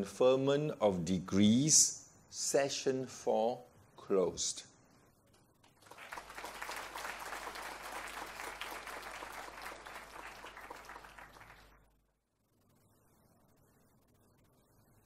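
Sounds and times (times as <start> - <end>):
audience applauding: 5.7 - 11.8.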